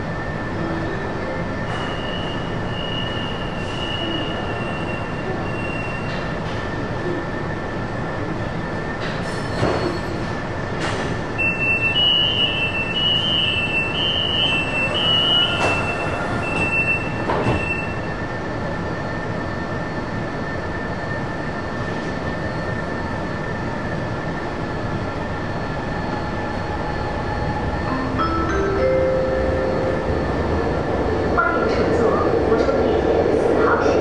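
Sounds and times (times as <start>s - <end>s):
train equipment humming: 0.0s - 34.0s
two-tone door warning beeps: 11.4s - 18.1s
train doors shutting knocks: 15.4s - 17.8s.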